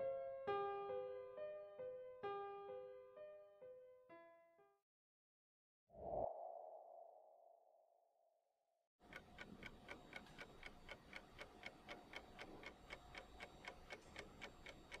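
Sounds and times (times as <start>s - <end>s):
fast clock-like ticking: 9.1s - 15.0s.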